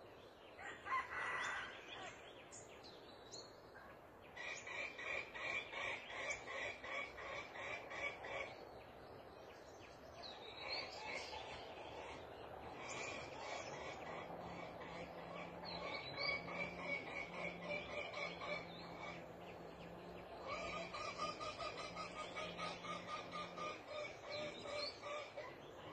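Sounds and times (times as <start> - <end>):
low frog croaking drone: 4.4 - 9.0, 10.4 - 25.9
rhythmic pulsing animal call: 11.4 - 25.9.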